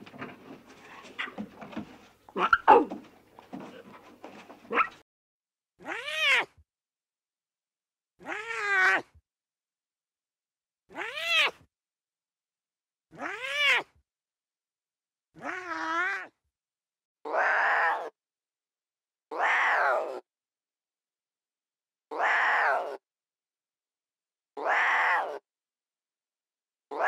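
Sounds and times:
lion cub mewing: 2.3 - 3.0, 17.3 - 18.1, 22.1 - 23.0, 24.6 - 25.4.

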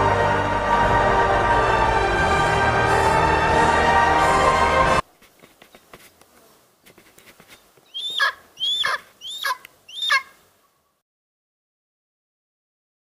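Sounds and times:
eagle yelping: 7.9 - 10.4.

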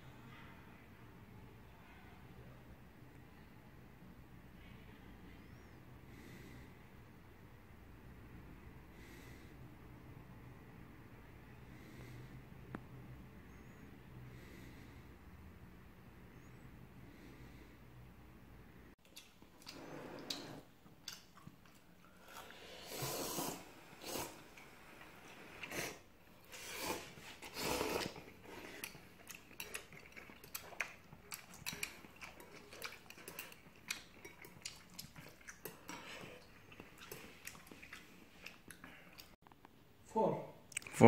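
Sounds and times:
eating noise: 19.0 - 39.4.

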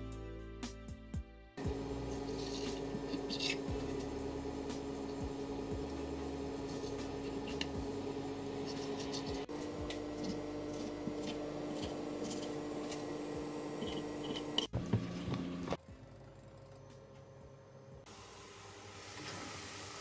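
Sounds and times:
soft music of sustained chords: 1.5 - 12.4.

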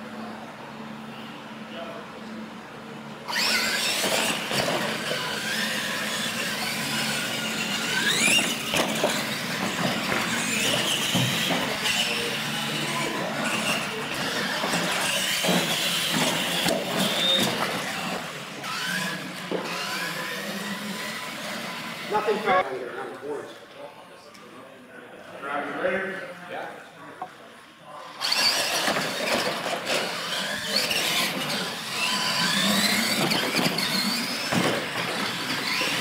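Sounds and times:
toy truck motors whining: 3.2 - 22.6, 28.0 - 36.0
tyre and drivetrain noise: 3.3 - 22.6, 28.2 - 36.0.

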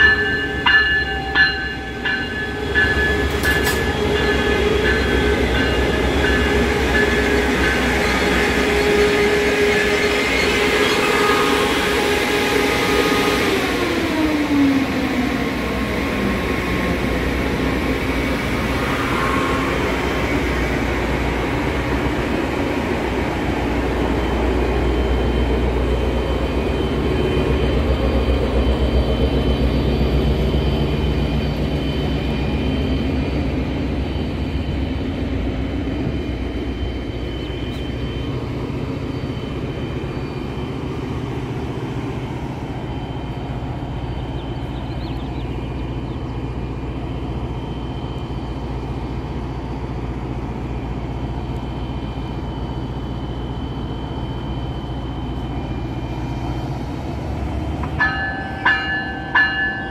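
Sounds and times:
locomotive engine drone: 0.0 - 59.9
thin steady whine: 16.1 - 59.9.

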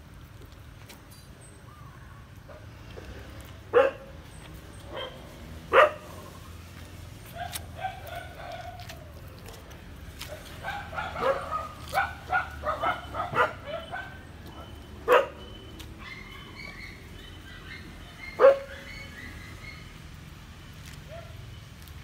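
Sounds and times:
puppies yipping and barking: 7.2 - 20.2.

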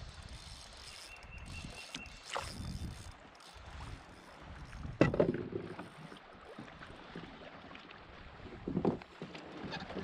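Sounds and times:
water noise: 0.0 - 10.0
wind noise: 1.3 - 5.7.

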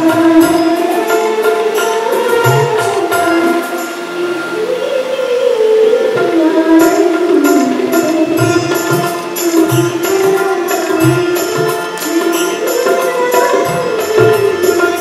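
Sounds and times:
tabla-like drum beat: 0.0 - 4.6, 6.0 - 15.0
musical accompaniment: 0.0 - 15.0
woman singing into a microphone: 0.0 - 15.0
high percussion ticks: 6.2 - 15.0.

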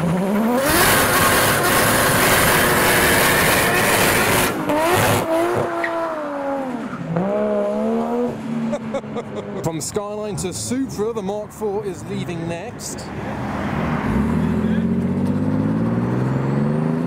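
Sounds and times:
car engine revving hard: 0.0 - 8.7, 13.9 - 17.0.

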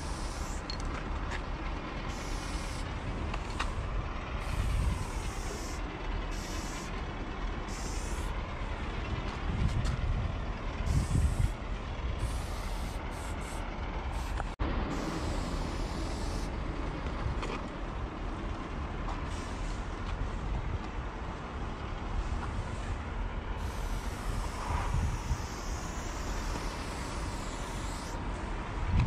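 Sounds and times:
spray paint can hissing: 0.0 - 0.8, 2.1 - 2.9, 4.4 - 7.0, 7.7 - 8.4, 10.9 - 11.6, 12.2 - 16.5, 23.6 - 28.2.

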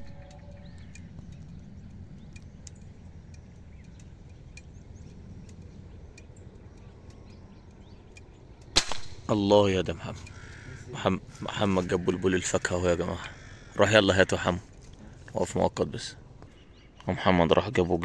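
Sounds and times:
faint bird chirps: 0.0 - 8.8, 9.9 - 17.9
low steady rumble: 0.0 - 18.0
air rifle firing: 8.8 - 9.3.

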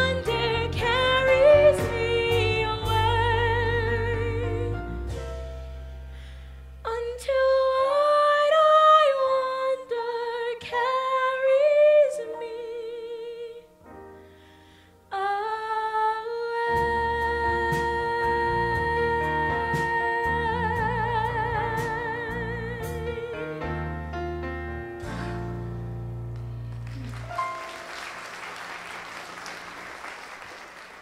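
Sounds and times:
woman singing with vibrato: 0.0 - 4.8, 6.9 - 13.7, 15.1 - 23.6
low instrumental accompaniment: 0.0 - 7.4, 16.8 - 28.4.

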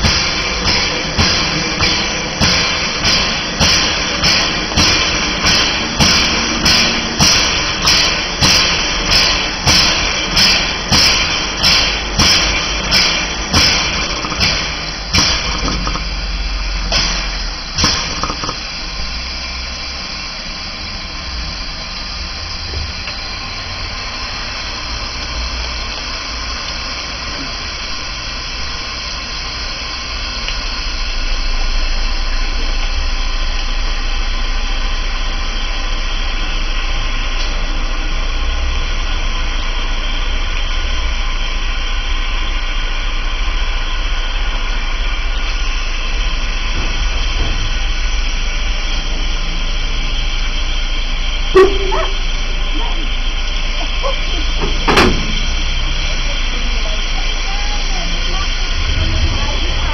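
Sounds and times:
sharp knocks: 0.0 - 16.1, 17.8 - 18.6
steam hissing: 0.0 - 59.9
steam locomotive low rumble: 0.0 - 59.9.

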